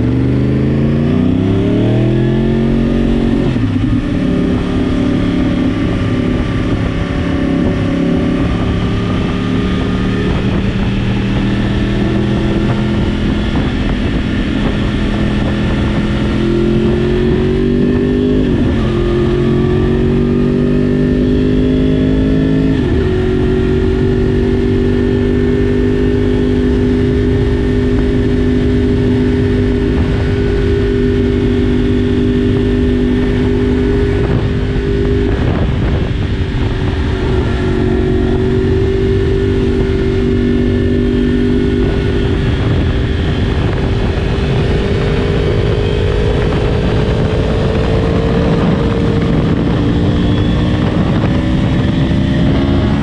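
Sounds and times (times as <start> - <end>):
motorcycle engine accelerating: 0.0 - 53.0.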